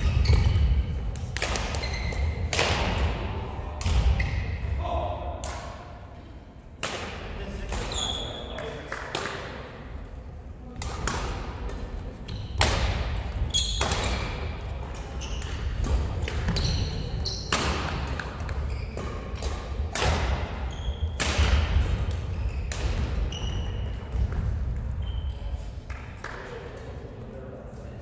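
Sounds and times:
shoe squeaks: 0:00.0 - 0:00.8, 0:01.7 - 0:02.4, 0:07.9 - 0:08.6, 0:13.5 - 0:13.9, 0:15.2 - 0:15.7, 0:16.5 - 0:17.6, 0:18.6 - 0:19.3, 0:20.7 - 0:21.2, 0:22.3 - 0:24.1, 0:25.0 - 0:25.6
racket hitting shuttlecock: 0:00.1 - 0:04.2, 0:06.8 - 0:08.1, 0:10.7 - 0:24.6.

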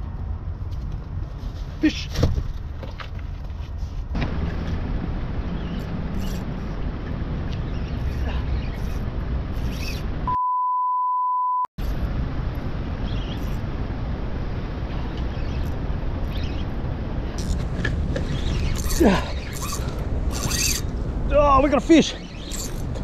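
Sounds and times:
censor bleep tone: 0:10.3 - 0:11.7.

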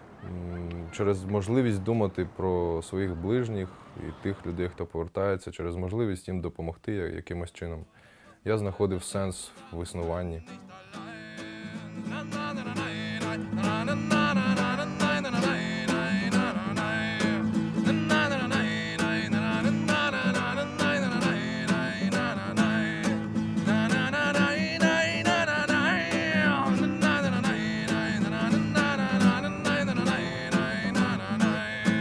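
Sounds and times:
man singing: 0:08.9 - 0:32.0
classical guitar strumming: 0:09.6 - 0:32.0.

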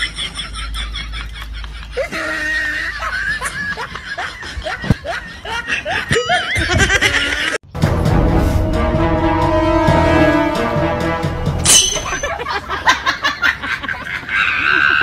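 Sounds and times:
people laughing: 0:00.0 - 0:07.6, 0:12.1 - 0:15.0.

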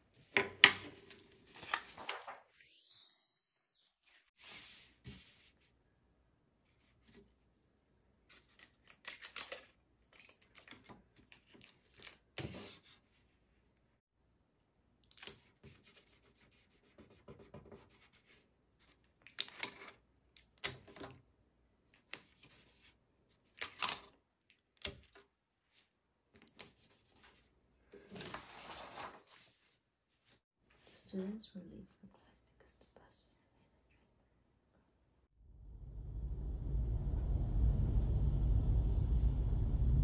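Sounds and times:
rustle or scrape: 0:03.8 - 0:05.7, 0:28.0 - 0:30.4
clicks of small objects handled: 0:08.3 - 0:12.5, 0:19.1 - 0:21.1, 0:26.4 - 0:26.8.

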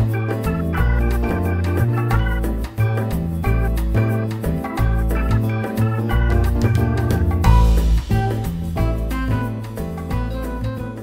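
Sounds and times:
keyboard chords with bass line: 0:00.0 - 0:11.0.

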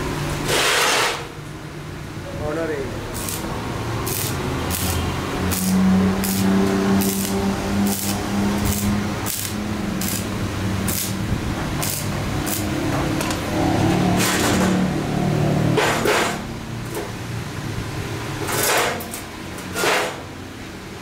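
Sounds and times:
sharp welding pops: 0:00.4 - 0:01.3, 0:03.1 - 0:13.4, 0:18.6 - 0:20.2
welding arc crackling hiss: 0:03.0 - 0:13.5.

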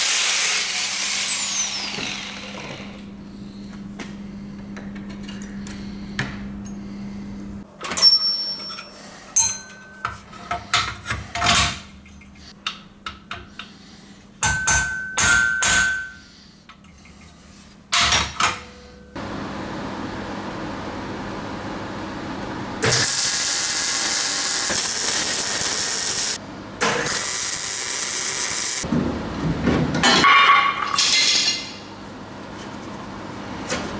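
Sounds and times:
steady low hum: 0:01.6 - 0:07.7
hammer striking steel: 0:14.4 - 0:16.2.

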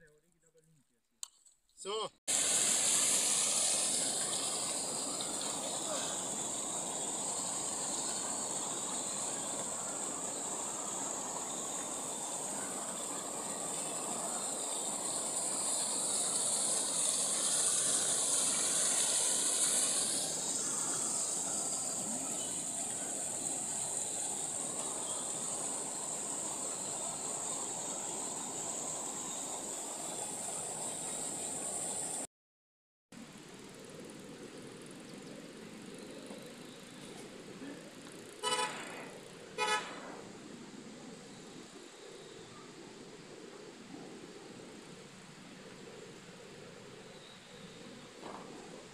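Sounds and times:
fast river rushing: 0:02.3 - 0:32.2.

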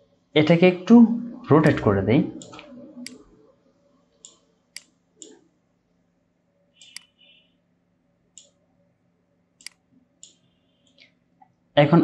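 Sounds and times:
faint steady hum: 0:00.0 - 0:12.0
computer mouse clicks: 0:02.4 - 0:03.2, 0:04.2 - 0:05.4, 0:06.8 - 0:07.1, 0:08.4 - 0:08.6, 0:09.6 - 0:11.1.

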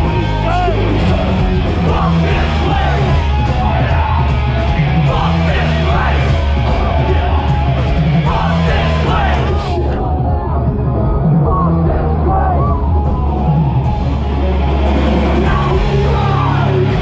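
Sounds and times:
shouted vocals: 0:00.0 - 0:10.7, 0:15.0 - 0:17.0
live metal band playing: 0:00.0 - 0:17.0.

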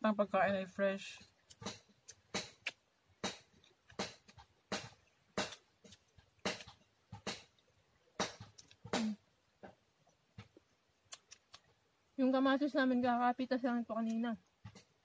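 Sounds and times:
mouths chewing and smacking: 0:08.3 - 0:11.8.

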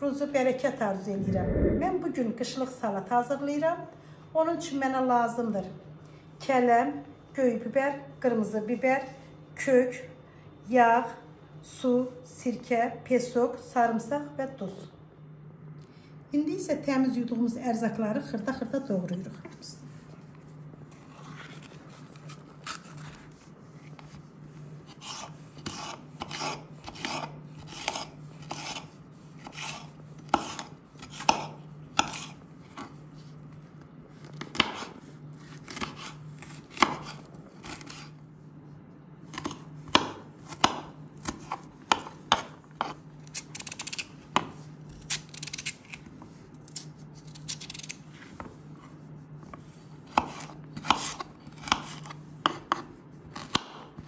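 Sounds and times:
knife chopping on wooden board: 0:25.0 - 0:28.8, 0:29.4 - 0:32.4, 0:34.4 - 0:34.9, 0:36.7 - 0:38.0, 0:39.3 - 0:43.0, 0:50.1 - 0:53.9.

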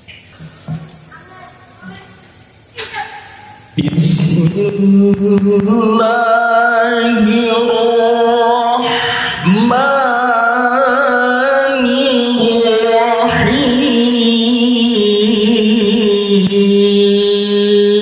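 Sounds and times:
man chanting into microphone: 0:03.8 - 0:18.0.

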